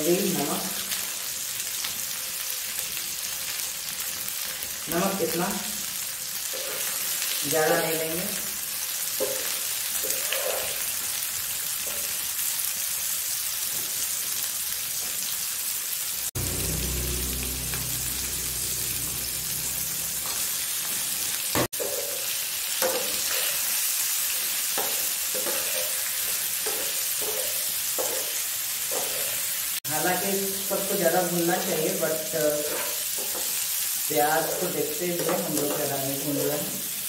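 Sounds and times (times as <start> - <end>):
vegetables sizzling in oil: 0.0 - 37.0
metal spoon scraping a pan: 6.4 - 7.4, 9.2 - 11.0, 21.7 - 29.6, 32.5 - 33.7
low rumble: 16.4 - 21.3.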